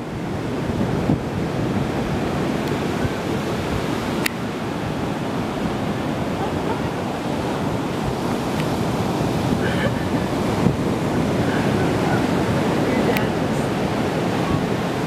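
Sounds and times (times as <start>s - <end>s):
ocean surf: 0.0s - 15.0s
wind: 0.0s - 15.0s
wind buffeting microphone: 0.0s - 15.0s.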